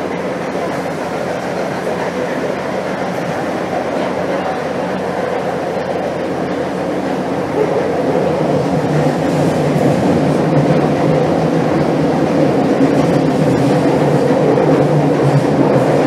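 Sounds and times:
train wheels rumbling on rail: 0:00.0 - 0:16.0.

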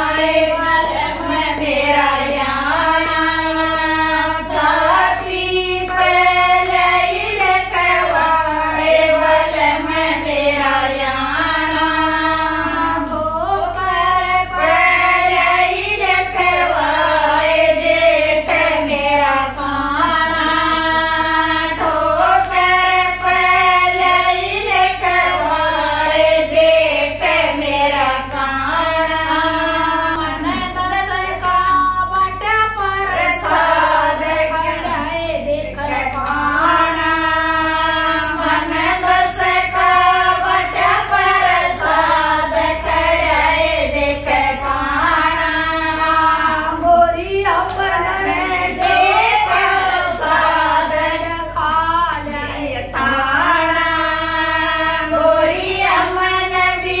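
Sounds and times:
group of women singing: 0:00.0 - 0:57.0.

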